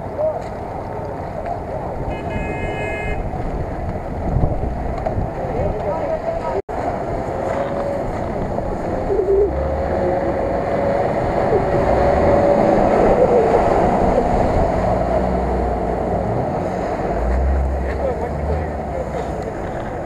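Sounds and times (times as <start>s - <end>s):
tyres churning mud: 0.0s - 20.0s
truck engine under load: 6.7s - 20.0s.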